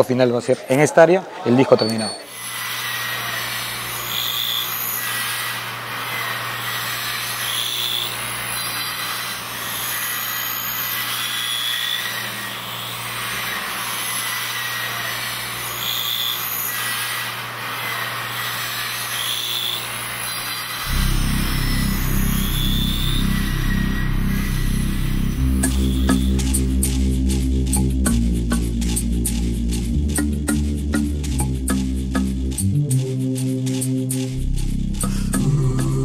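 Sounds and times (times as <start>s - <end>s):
lathe motor hum: 20.8s - 27.4s
short high whines: 20.8s - 27.9s.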